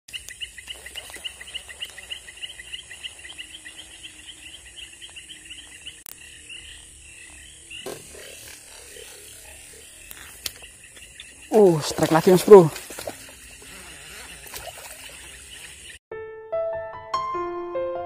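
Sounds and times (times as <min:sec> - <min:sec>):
rapid chirping animal call: 0:00.1 - 0:14.4.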